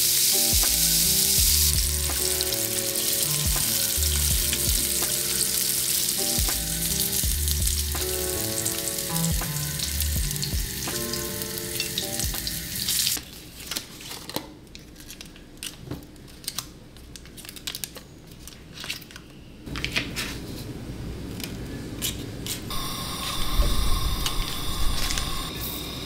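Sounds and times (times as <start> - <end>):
foil crinkling: 0.0 - 10.5, 11.2 - 20.0.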